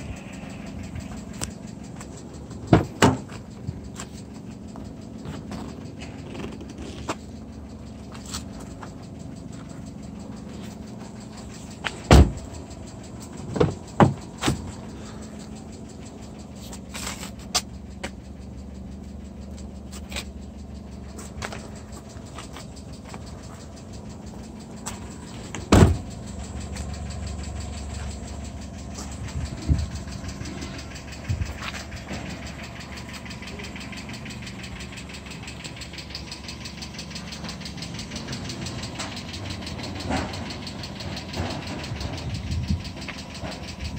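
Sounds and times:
car engine idling: 0.0 - 43.9
car door slamming: 2.6 - 3.4, 11.9 - 12.6, 13.5 - 14.6, 25.6 - 26.1.

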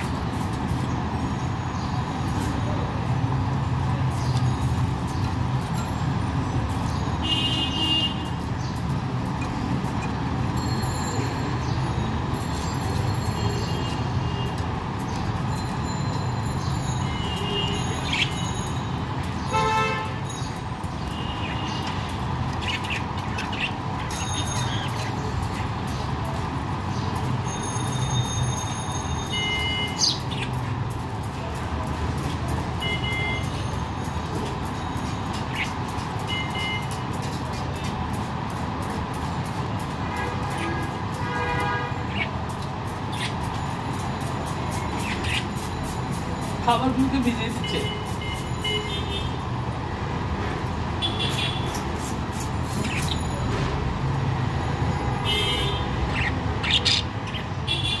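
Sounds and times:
road traffic rumble: 0.0 - 58.0
bird chirp: 17.8 - 18.6, 20.3 - 26.2, 29.4 - 30.7, 44.7 - 45.6, 52.7 - 53.3, 56.1 - 57.6.

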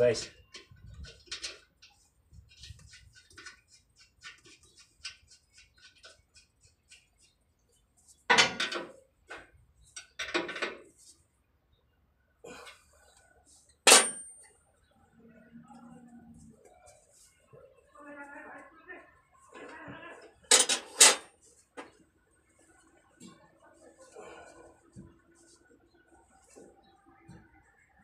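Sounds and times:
sharp metal clink: 13.9 - 14.5.

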